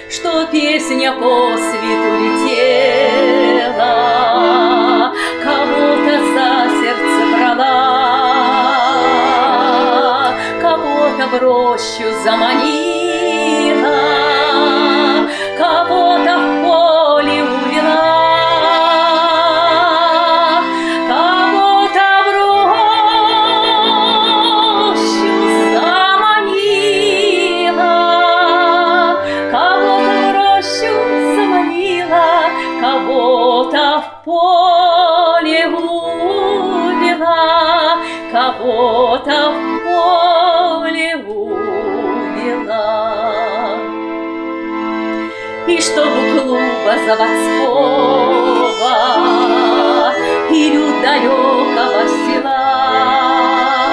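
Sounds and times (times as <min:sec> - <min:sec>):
woman singing with vibrato: 0:00.0 - 0:44.0, 0:45.5 - 0:53.9
accordion chords: 0:00.0 - 0:53.9.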